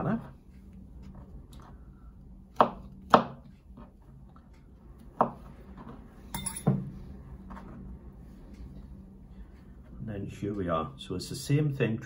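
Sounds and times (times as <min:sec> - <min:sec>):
knife chopping on board: 0:02.5 - 0:03.5.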